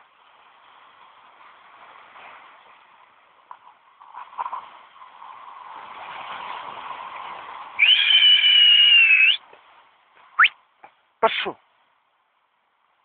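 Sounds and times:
steady hiss: 0.0s - 13.0s
whistle blast: 7.8s - 9.4s.

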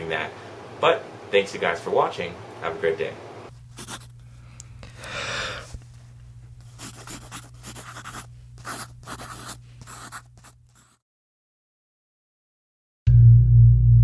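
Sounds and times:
low steady hum: 0.0s - 10.7s
marker pen scratchy strokes: 3.8s - 4.2s, 6.6s - 11.0s.

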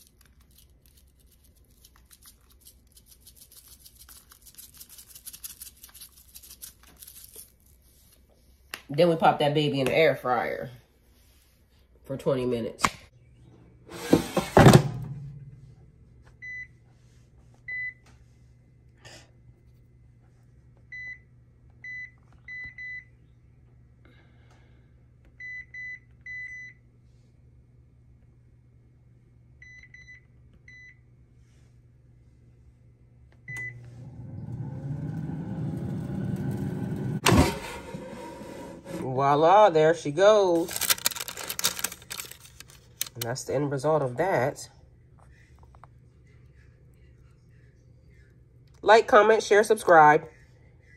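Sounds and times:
air fryer fan whirring: 33.4s - 44.7s.

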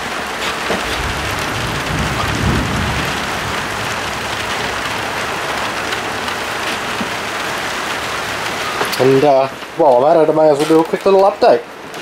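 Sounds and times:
steady rain falling: 0.0s - 12.0s
low rumble: 0.9s - 6.3s.

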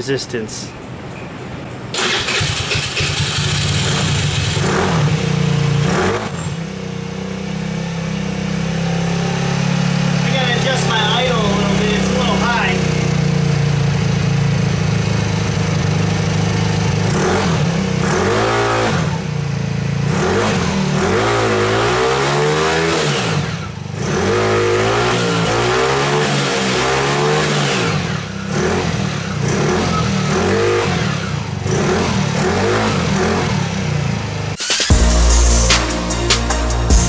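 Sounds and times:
scooter engine revving and idling: 1.9s - 35.3s.

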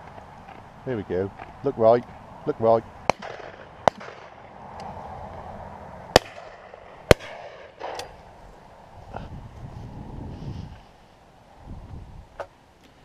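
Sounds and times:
close shotgun shots: 3.1s - 4.4s, 6.1s - 8.1s
distant gunshots: 3.1s - 4.4s, 6.1s - 8.1s.

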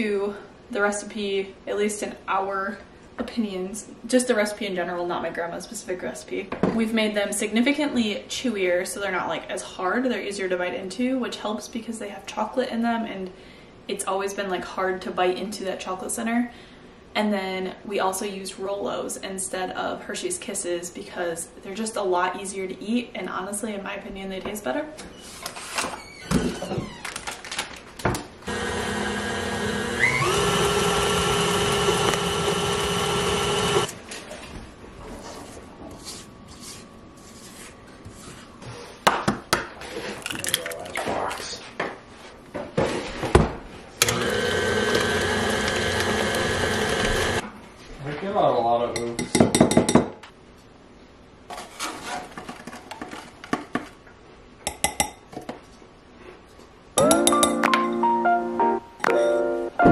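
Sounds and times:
beater churning dough: 28.5s - 33.9s, 44.0s - 47.4s
stand mixer motor whining: 28.5s - 33.9s, 44.0s - 47.4s.

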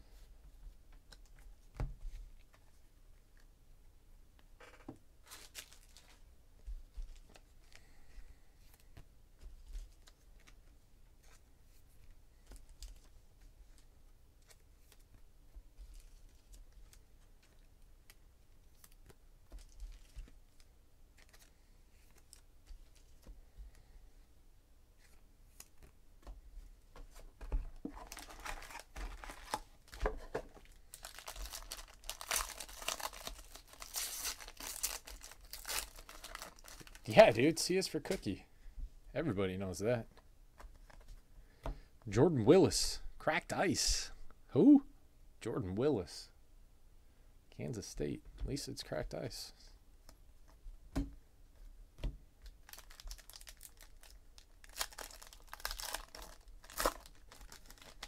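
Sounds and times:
foil wrapper tearing and crinkling: 28.0s - 29.6s, 30.9s - 37.2s, 52.6s - 58.0s.

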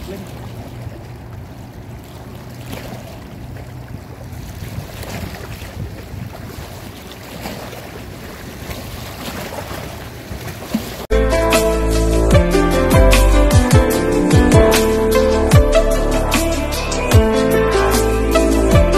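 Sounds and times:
sea water lapping: 0.0s - 11.1s
wind buffeting microphone: 0.8s - 10.7s.

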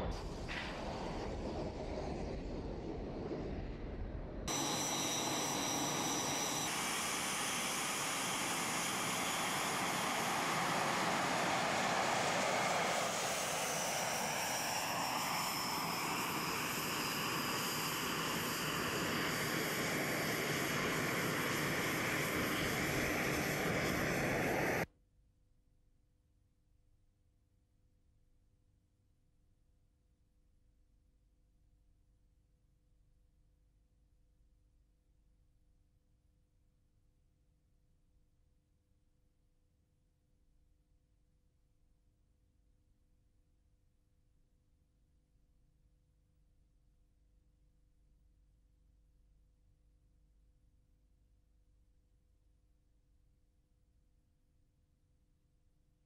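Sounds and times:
jet engine rushing with whine: 0.0s - 24.9s.

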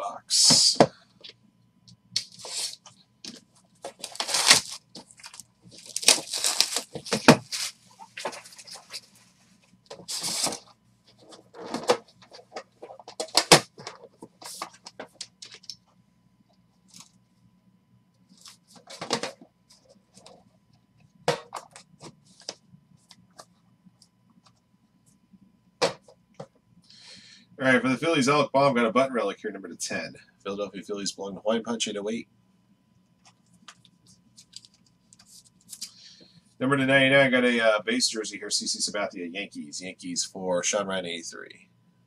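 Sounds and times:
cards clicking and rustling: 3.3s - 9.0s
plastic wrap crinkling: 3.8s - 9.0s
cardboard scraping: 3.9s - 9.1s, 10.0s - 14.8s.

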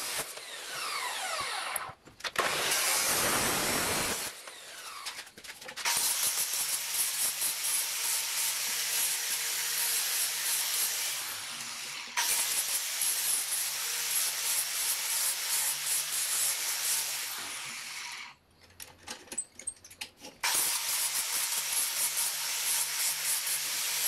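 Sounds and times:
angle grinder cutting steel pipe: 0.0s - 5.1s.

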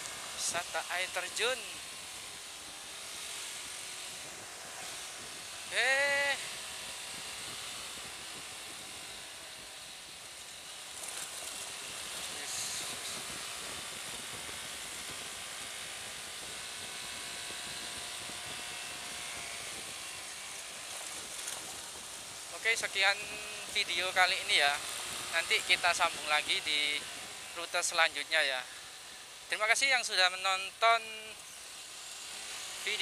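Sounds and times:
wind and road rush: 1.6s - 5.8s, 6.4s - 26.2s.

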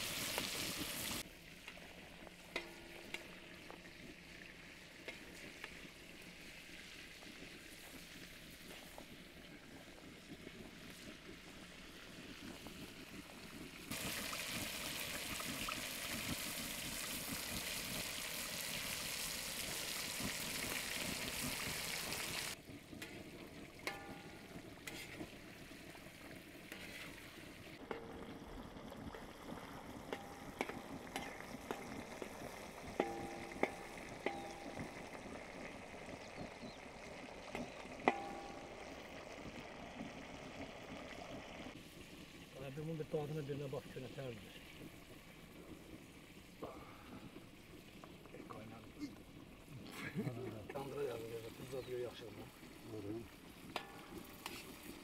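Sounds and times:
food sizzling in frying pan: 0.0s - 55.0s
metal spatula scraping pan: 23.0s - 25.4s, 26.6s - 28.2s, 53.8s - 55.0s.

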